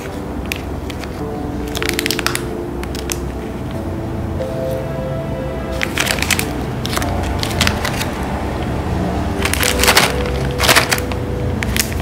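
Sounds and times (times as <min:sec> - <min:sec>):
plastic wrappers crinkling: 0:00.0 - 0:03.8, 0:05.7 - 0:08.6, 0:09.3 - 0:12.0
background music: 0:00.0 - 0:12.0.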